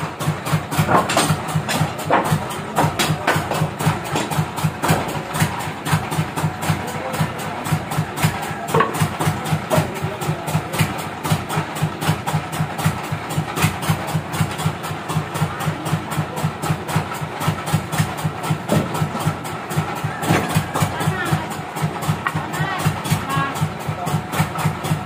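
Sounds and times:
sawmill engine idling: 0.0s - 25.0s
logs knocking: 0.7s - 6.3s, 8.3s - 9.9s, 18.5s - 19.5s.

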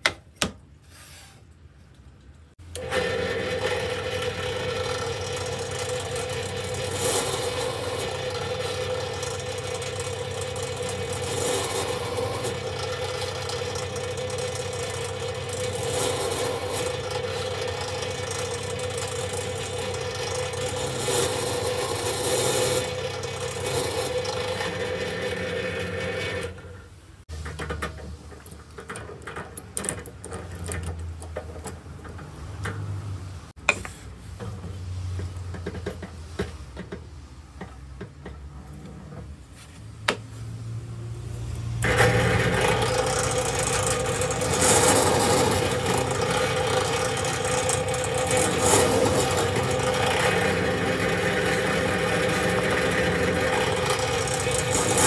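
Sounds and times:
electric drill boring into wood: 2.7s - 26.6s, 41.8s - 55.0s.

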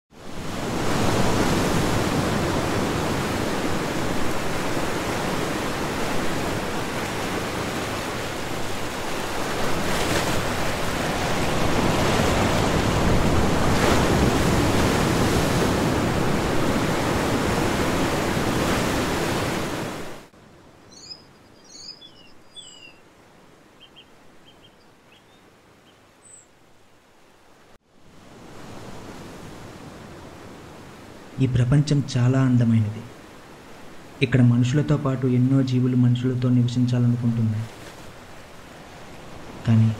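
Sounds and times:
surf breaking on rocks: 0.2s - 20.3s
faint high chirps: 20.9s - 23.0s, 23.8s - 26.5s.

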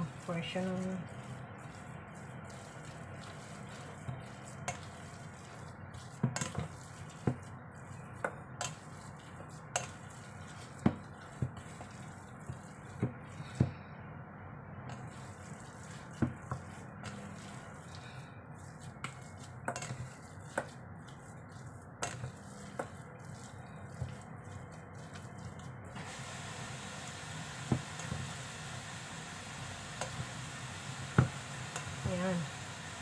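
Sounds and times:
wet mixture squishing: 0.0s - 13.9s, 14.9s - 28.9s.

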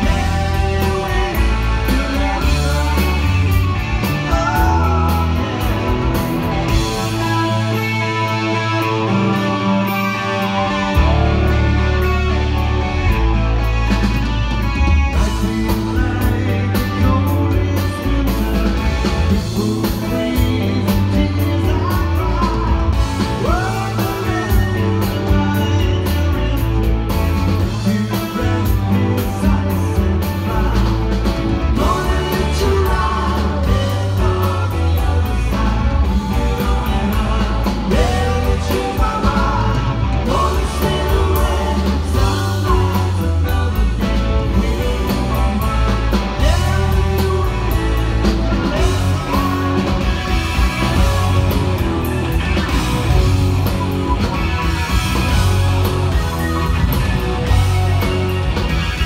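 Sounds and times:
person singing: 0.0s - 9.6s, 15.1s - 26.9s, 27.6s - 51.9s
bass: 0.0s - 59.0s
drums: 0.0s - 59.0s
electric guitar: 0.0s - 59.0s.

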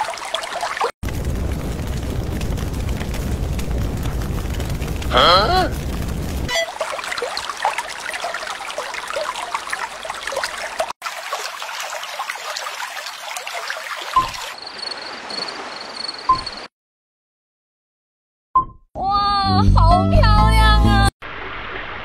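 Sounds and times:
water trickling and gurgling: 0.0s - 5.1s, 5.8s - 16.7s.

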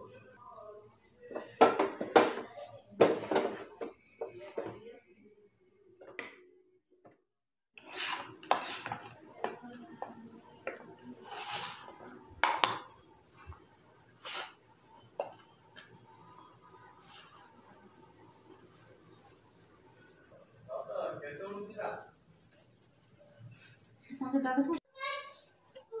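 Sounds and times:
spatula scraping metal pan: 7.8s - 9.8s, 11.2s - 12.1s.

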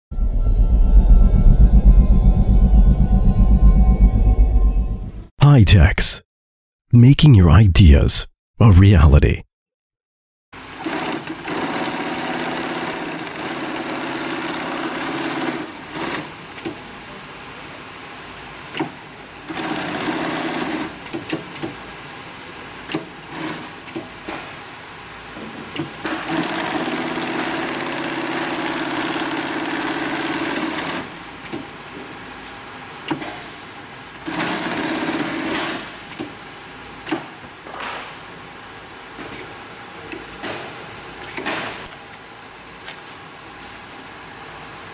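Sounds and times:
industrial sewing machine running: 10.7s - 16.4s, 19.4s - 21.1s, 26.2s - 31.2s, 34.2s - 35.8s.

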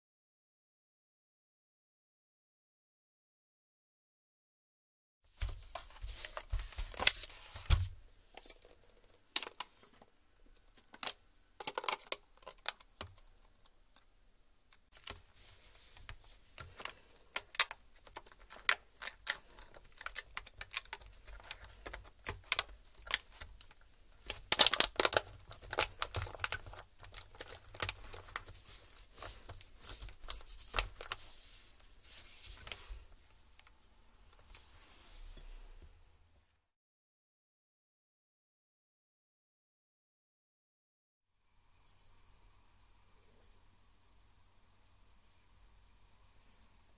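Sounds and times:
plastic keyboard clicks: 10.8s - 13.3s.

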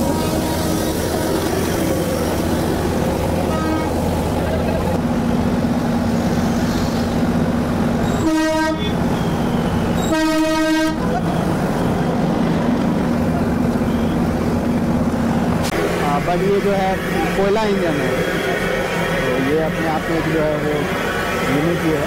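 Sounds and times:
locomotive running rumble: 0.0s - 22.0s
train whistle blasts: 8.0s - 11.0s.

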